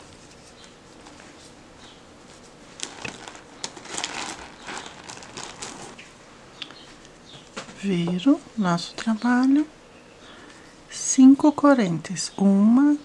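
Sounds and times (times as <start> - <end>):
yarn rustling and clicking: 0.2 - 6.1.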